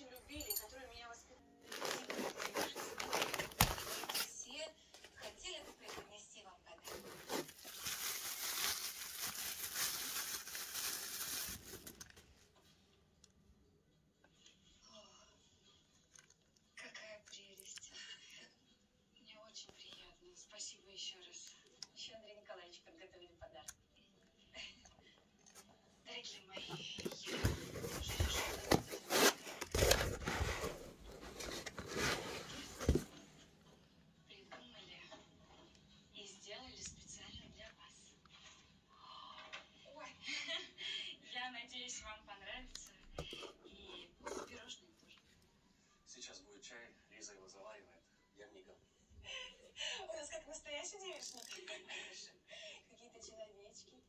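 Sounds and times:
bubble wrap crinkling: 1.7 - 4.4, 6.8 - 12.2
rustling and scraping of foam packing: 1.7 - 4.4, 6.8 - 12.1, 27.0 - 33.2.

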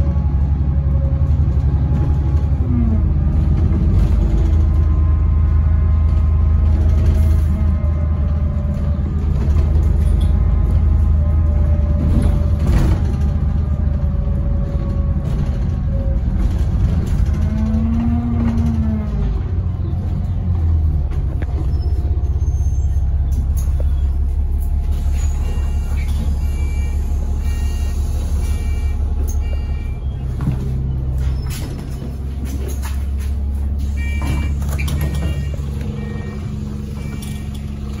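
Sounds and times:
bus engine idling: 0.0 - 38.0
short high door warning beeps: 25.4 - 30.0, 33.8 - 37.7.

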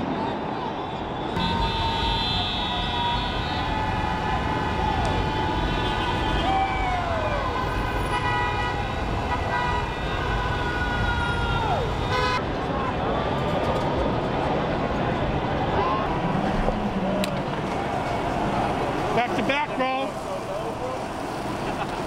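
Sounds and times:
crowd and traffic din: 0.0 - 22.0
car horns blaring: 1.4 - 3.9, 5.2 - 6.5, 7.5 - 12.4.

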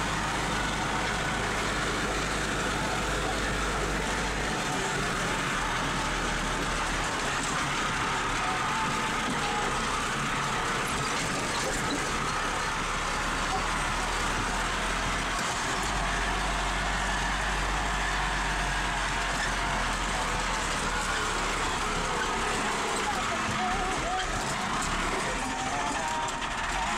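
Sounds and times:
tractor diesel engine running: 0.0 - 26.9.

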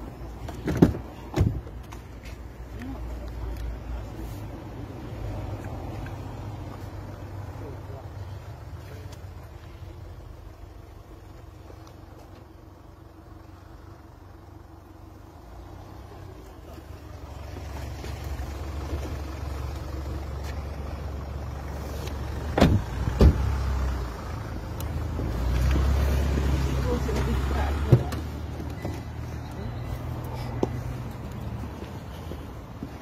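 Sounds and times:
car door knocks: 0.5 - 1.7, 22.6 - 23.4.

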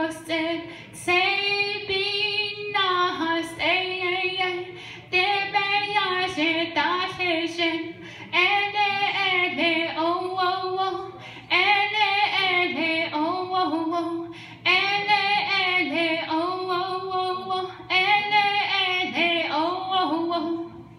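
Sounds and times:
woman singing into a microphone: 0.0 - 20.9
singer breathing: 0.6 - 1.0, 4.6 - 5.1, 7.9 - 8.4, 11.1 - 11.5, 14.2 - 14.7.

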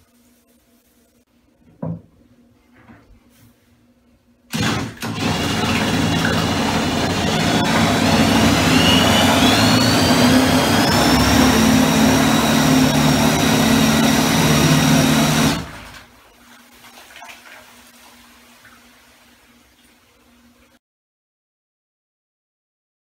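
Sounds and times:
propeller churning water: 4.5 - 18.6
electric motor whining: 5.0 - 15.9
water sloshing and fizzing: 15.0 - 20.8.

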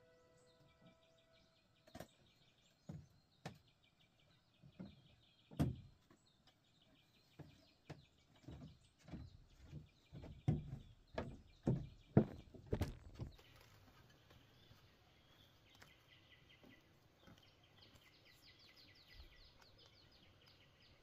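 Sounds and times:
small birds chirping: 0.1 - 21.0
dull thuds and knocks: 4.8 - 5.9, 7.4 - 13.4.

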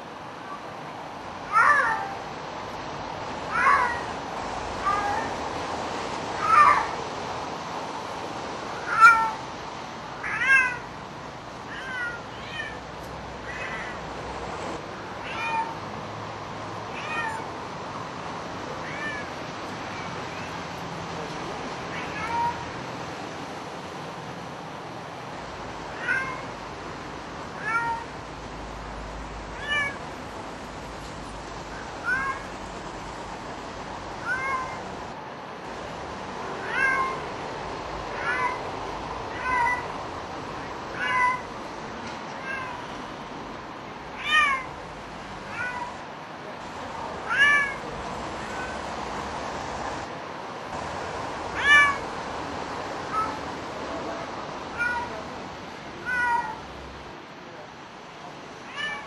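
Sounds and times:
cat meowing: 1.5 - 2.2, 3.5 - 4.1, 4.8 - 5.3, 6.4 - 7.0, 8.8 - 9.4, 10.2 - 10.9, 11.7 - 12.8, 13.4 - 14.0, 15.2 - 15.8, 16.9 - 17.5, 18.8 - 19.3, 21.9 - 22.6, 25.9 - 26.5, 27.6 - 28.1, 29.6 - 30.0, 32.0 - 32.5, 34.2 - 34.9, 36.6 - 37.2, 38.1 - 38.6, 39.3 - 39.9, 40.9 - 41.5, 42.4 - 42.8, 44.2 - 44.7, 45.5 - 46.0, 47.2 - 47.8, 51.6 - 52.0, 53.1 - 53.4, 54.7 - 55.2, 56.0 - 56.7, 58.7 - 59.0.

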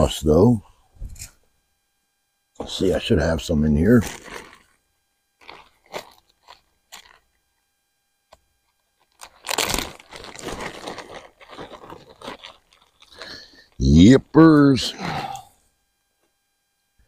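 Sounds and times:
bag rustling and crinkling: 3.9 - 4.8, 5.4 - 7.3, 9.0 - 13.8.

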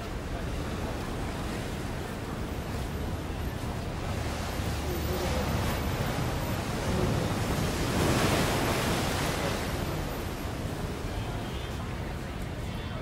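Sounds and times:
surf wave breaking: 4.0 - 11.1.

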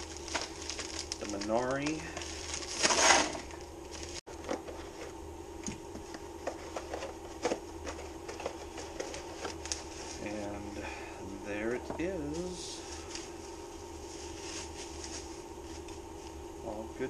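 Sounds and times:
plastic envelope being opened: 0.0 - 4.7, 7.4 - 10.4
steady low hum: 0.0 - 17.0.

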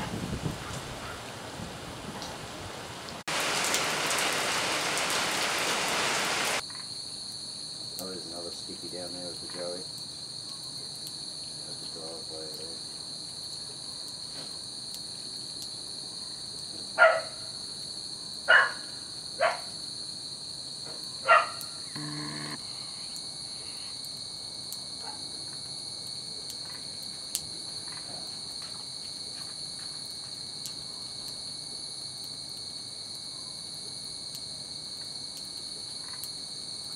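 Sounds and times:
crickets chirping: 3.4 - 36.9
brief low buzz: 22.0 - 22.6.

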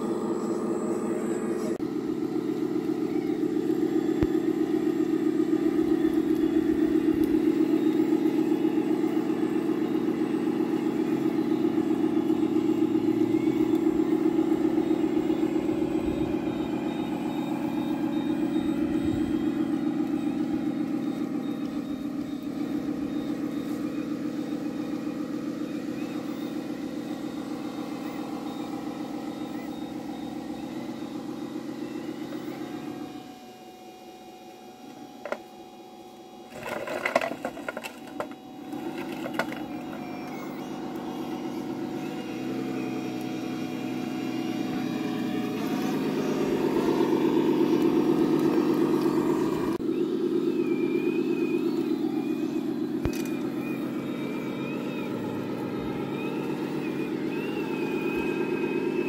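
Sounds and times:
toy truck motor humming: 0.0 - 59.0
clicks and rattles of tipping bed: 36.5 - 38.4
stones sliding out: 36.5 - 39.7.

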